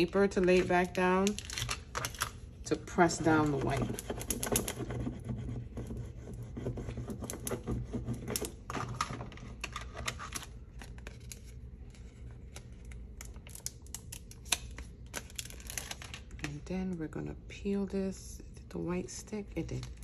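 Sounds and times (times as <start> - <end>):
plastic sheet crinkling: 0.0 - 2.4, 8.3 - 16.6.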